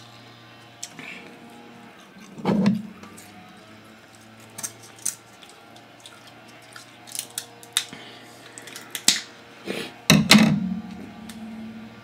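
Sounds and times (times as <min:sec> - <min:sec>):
shears snipping crab shell: 0:06.7 - 0:09.2.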